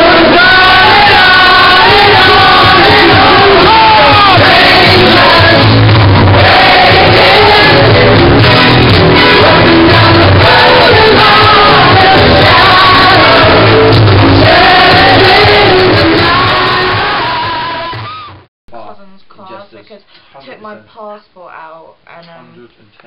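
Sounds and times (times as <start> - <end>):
loud music with singing: 0.0 - 18.4.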